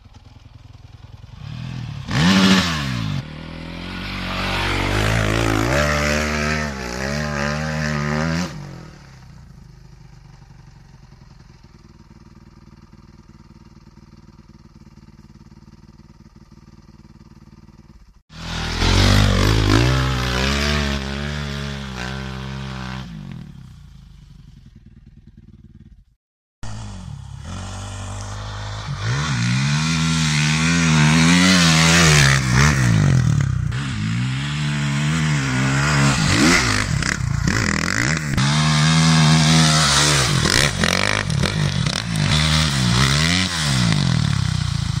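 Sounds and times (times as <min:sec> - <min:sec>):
faint engine: 0:00.0 - 0:45.0
dirt bike engine revving: 0:01.1 - 0:09.4, 0:18.3 - 0:45.0.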